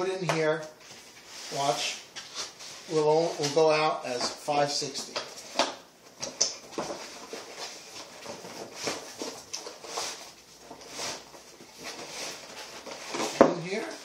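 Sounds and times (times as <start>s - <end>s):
cardboard scraping against envelope: 7.0s - 14.0s.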